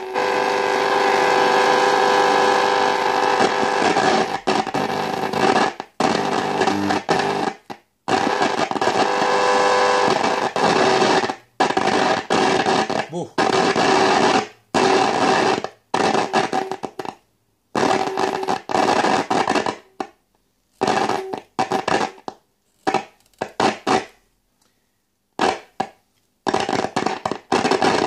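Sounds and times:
radio static hiss: 0:00.0 - 0:17.2, 0:17.8 - 0:20.0, 0:20.8 - 0:22.3.

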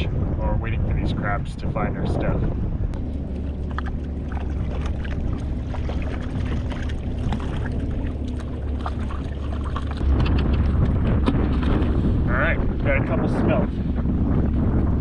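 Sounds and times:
steady low rumble: 0:00.0 - 0:15.0
water slapping against kayak hull: 0:03.2 - 0:12.2
small ticks and splashes: 0:03.3 - 0:10.0.

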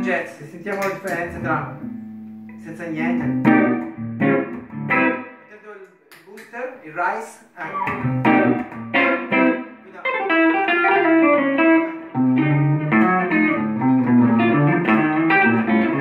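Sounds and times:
electric guitar notes and chords: 0:01.1 - 0:05.5, 0:07.7 - 0:16.0.

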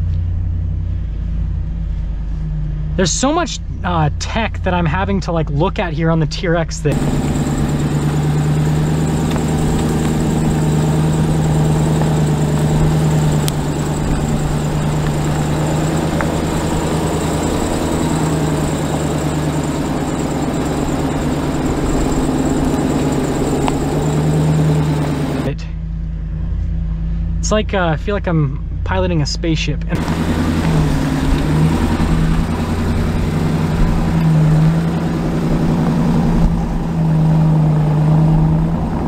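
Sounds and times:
engine low drone: 0:00.0 - 0:39.0
broad rushing noise: 0:06.9 - 0:25.6, 0:30.0 - 0:39.0.

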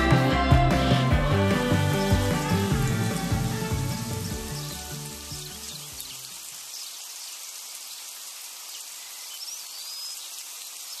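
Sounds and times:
low music notes: 0:00.0 - 0:05.6
outdoor nature ambience hiss: 0:01.3 - 0:11.0.

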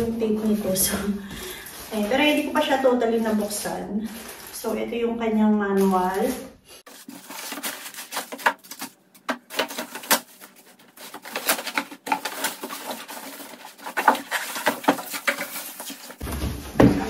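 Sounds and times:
plastic wrapping rustling: 0:00.4 - 0:05.0, 0:05.7 - 0:17.0.

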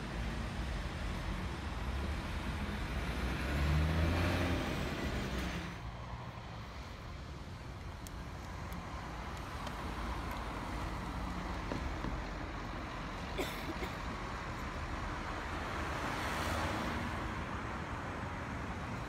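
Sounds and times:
diesel engine passing: 0:00.0 - 0:05.9
traffic moving: 0:00.0 - 0:19.0.

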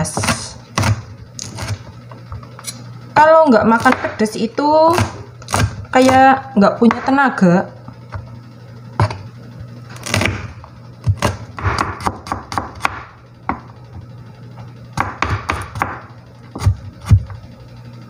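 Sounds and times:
knife chopping on plastic board: 0:00.0 - 0:02.4, 0:03.7 - 0:04.2, 0:04.9 - 0:06.2, 0:06.8 - 0:07.3, 0:09.0 - 0:09.2, 0:10.0 - 0:13.7, 0:15.0 - 0:17.3.

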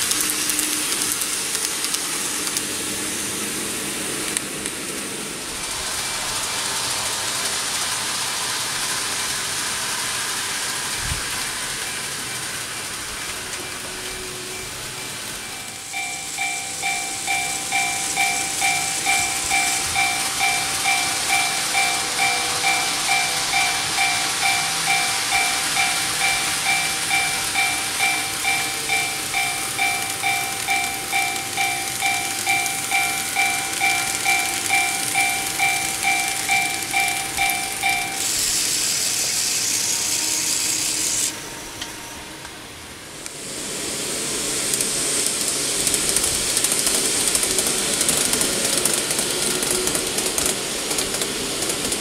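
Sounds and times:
steady hiss: 0:00.0 - 0:52.0
level-crossing warning bell: 0:05.4 - 0:43.1.

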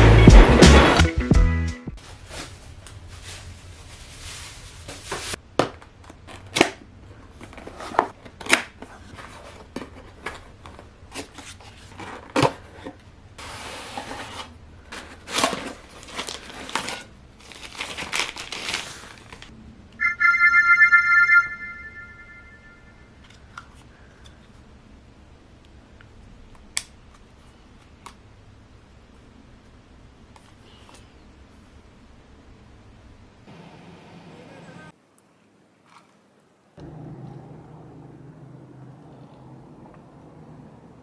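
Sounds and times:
cardboard packaging crinkling: 0:15.2 - 0:19.5
bright chiming tone: 0:20.0 - 0:23.1.

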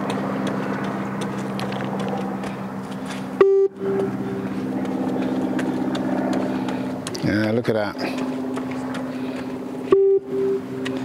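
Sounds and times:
steady low hum: 0:00.0 - 0:11.0
short electronic beep: 0:03.4 - 0:03.9, 0:09.9 - 0:10.6.

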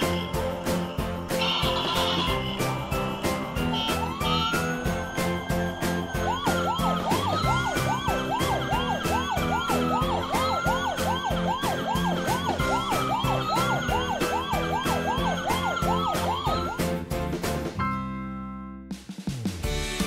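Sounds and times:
siren wail: 0:00.0 - 0:17.0
upbeat background music: 0:00.0 - 0:20.0
siren yelp: 0:01.4 - 0:17.0.

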